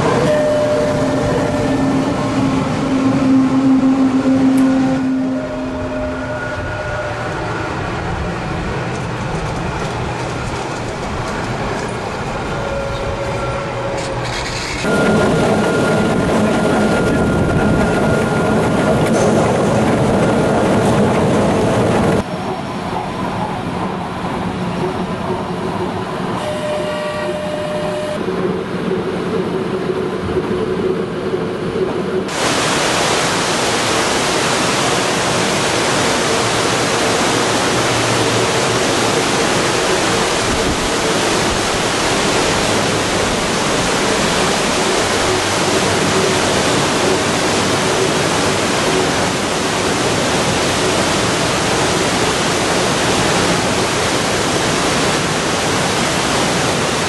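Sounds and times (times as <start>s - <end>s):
waterfall rushing: 0.0s - 7.9s, 32.3s - 57.0s
electric train humming: 0.0s - 57.0s.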